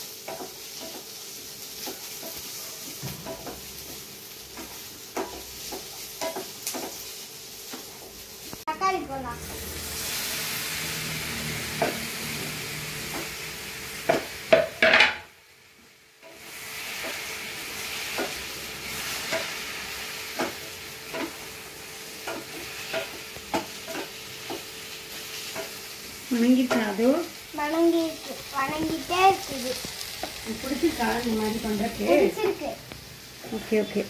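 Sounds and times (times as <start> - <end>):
vegetables sizzling in a pan: 0.0 - 34.0
spatula scraping and knocking pan: 0.2 - 7.1, 11.7 - 13.4, 14.0 - 15.3, 16.2 - 26.0, 27.7 - 32.6.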